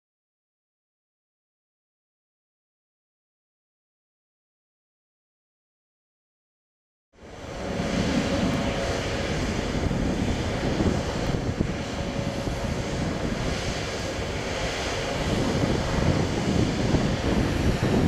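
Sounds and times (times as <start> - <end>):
low rumble: 7.2 - 18.0
wind buffeting microphone: 7.2 - 18.0.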